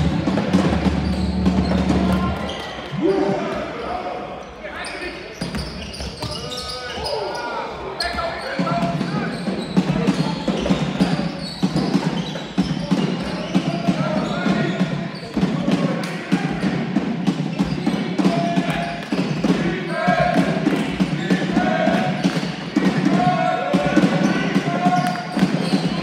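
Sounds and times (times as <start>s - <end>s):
basketballs bouncing: 0.0s - 2.8s, 8.6s - 26.0s
people's voices: 0.0s - 26.0s.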